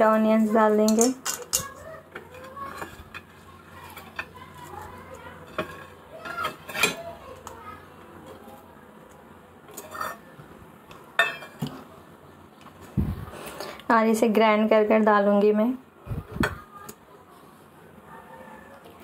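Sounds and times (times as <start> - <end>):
kitchen utensils clinking: 0.0 - 7.6, 9.7 - 10.4, 11.2 - 11.8.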